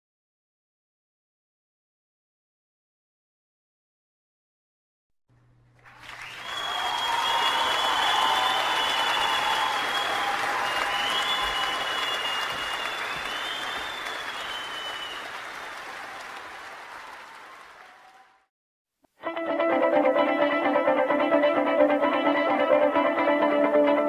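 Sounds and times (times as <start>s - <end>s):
crowd applauding: 5.7s - 18.5s
long high whistles: 6.2s - 15.4s.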